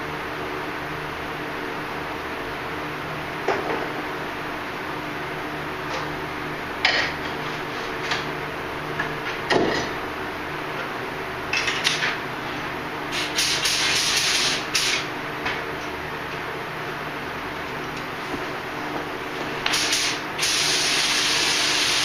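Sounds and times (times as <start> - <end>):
low machine hum: 0.0 - 22.0
paint spray gun hissing: 13.1 - 15.1, 19.7 - 22.0.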